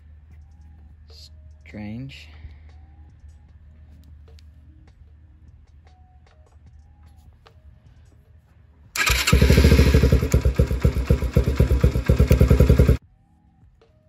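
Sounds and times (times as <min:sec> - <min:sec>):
dirt bike engine running: 0:09.0 - 0:13.0.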